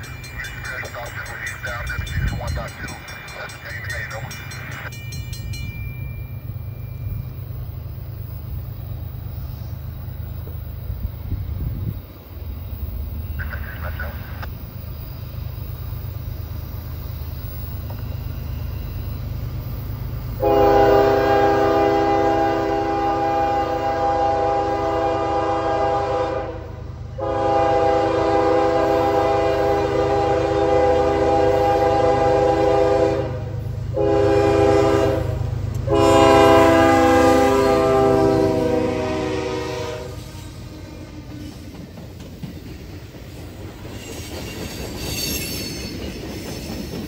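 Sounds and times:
diesel locomotive rumble: 0:00.0 - 0:47.0
locomotive air horn blowing: 0:20.4 - 0:41.1.

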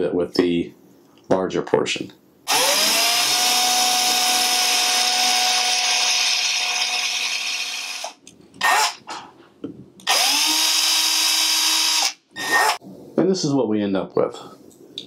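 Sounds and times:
drill bit cutting metal: 0:02.5 - 0:09.0, 0:10.1 - 0:12.8
electric drill whining: 0:02.5 - 0:09.0, 0:10.1 - 0:12.8.

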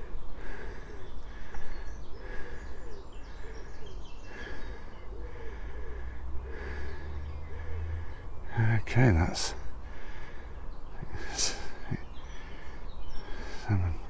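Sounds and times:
pigeon cooing: 0:02.2 - 0:08.2.

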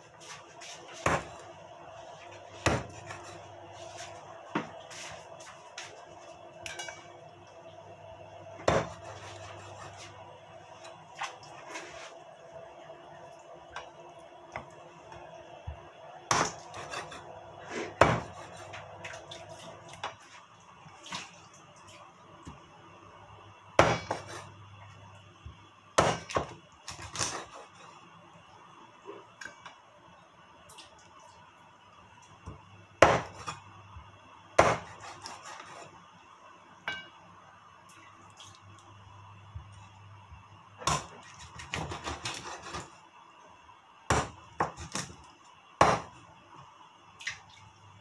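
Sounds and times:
cleaver chopping on wooden board: 0:34.6 - 0:34.9.

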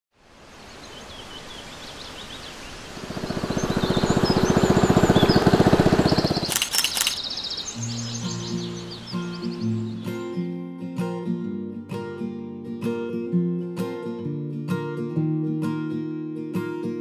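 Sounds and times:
birds chirping: 0:00.5 - 0:10.6
motorboat engine puttering: 0:03.0 - 0:07.3
guitar music: 0:07.7 - 0:17.0.

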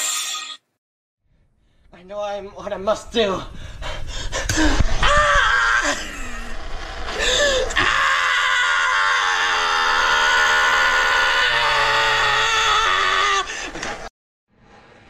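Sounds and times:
person screaming: 0:05.0 - 0:13.6.

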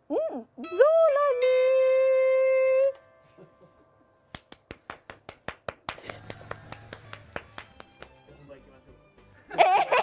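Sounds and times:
hands clapping: 0:04.3 - 0:08.6.

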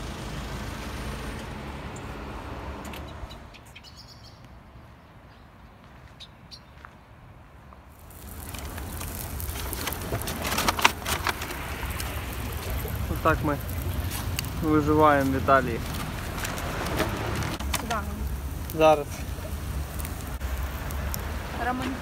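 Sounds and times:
hiss with crackles: 0:07.9 - 0:22.0
low outdoor rumble: 0:07.9 - 0:22.0.

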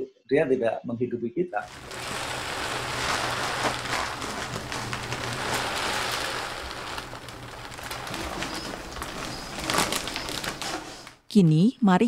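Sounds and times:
rice pouring into plastic bag: 0:01.6 - 0:11.2.

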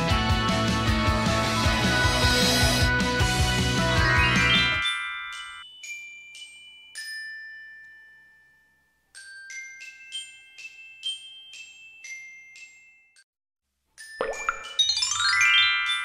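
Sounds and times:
bell-like chiming jingle: 0:03.7 - 0:13.3, 0:14.0 - 0:16.0.

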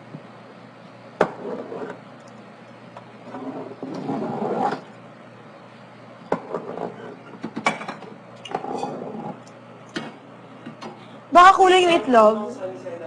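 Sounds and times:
dishes and utensils clinking: 0:06.8 - 0:09.2.

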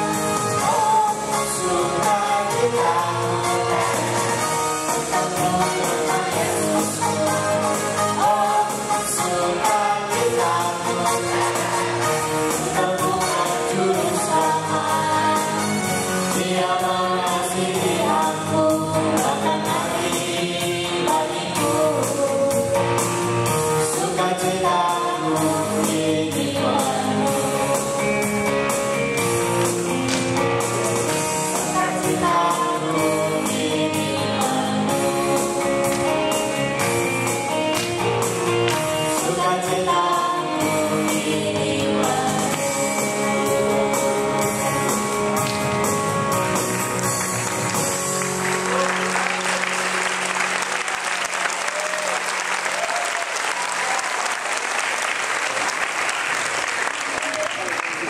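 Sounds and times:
song with singing and beat: 0:00.0 - 0:49.4
audience applause: 0:46.7 - 0:58.0.

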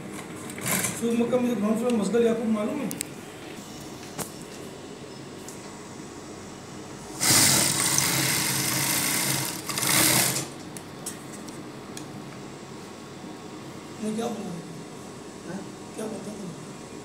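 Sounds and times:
sewing machine stitching: 0:07.2 - 0:10.5.

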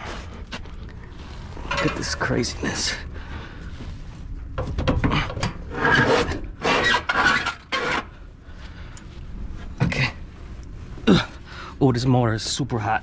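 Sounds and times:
low steady hum: 0:00.0 - 0:13.0
motor scraping and rubbing: 0:05.7 - 0:08.1.

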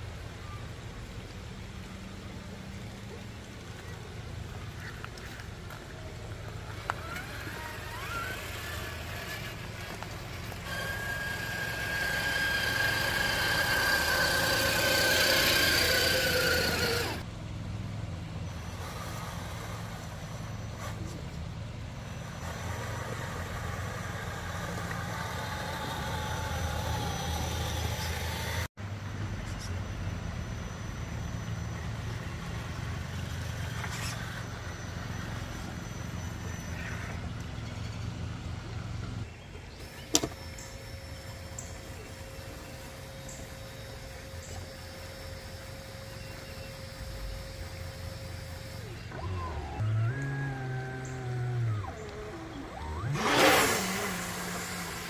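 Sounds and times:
lower wavering motor whine: 0:00.0 - 0:55.0
high electric motor whine: 0:03.8 - 0:17.3, 0:18.4 - 0:55.0.

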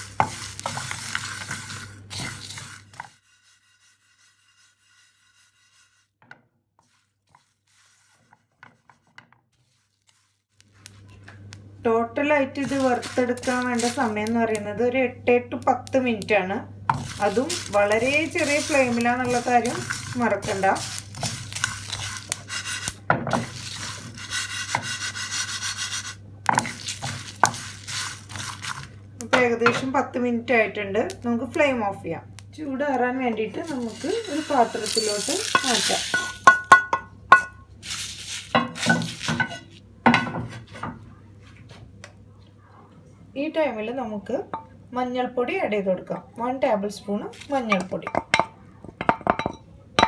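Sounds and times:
spices rattling in a pan: 0:00.0 - 0:06.0, 0:12.5 - 0:14.7, 0:16.8 - 0:29.9, 0:33.2 - 0:39.8
wooden spatula stirring: 0:00.0 - 0:06.1, 0:06.8 - 0:11.3, 0:12.5 - 0:14.3, 0:16.9 - 0:29.0, 0:33.3 - 0:39.8.

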